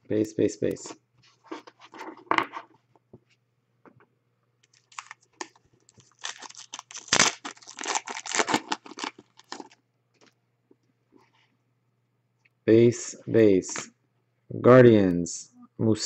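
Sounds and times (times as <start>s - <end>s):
cards rustling: 4.7s - 9.8s
foil wrapper tearing and crinkling: 4.7s - 9.8s.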